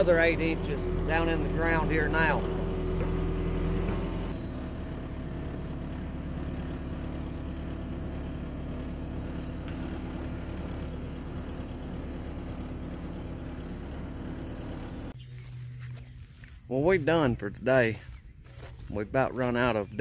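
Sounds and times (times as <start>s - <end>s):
excavator diesel engine running: 0.0s - 15.6s
high electronic beeps: 7.9s - 12.6s.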